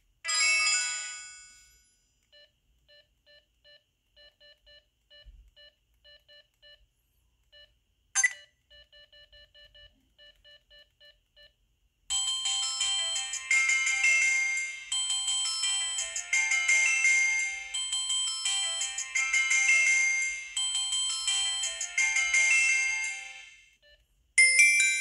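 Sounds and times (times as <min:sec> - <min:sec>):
faint key beeps: 0:08.2 - 0:08.4
loud ringtone: 0:08.2 - 0:08.4, 0:12.1 - 0:23.8
phone chime: 0:08.2 - 0:08.4
sharp phone tone: 0:08.2 - 0:08.4.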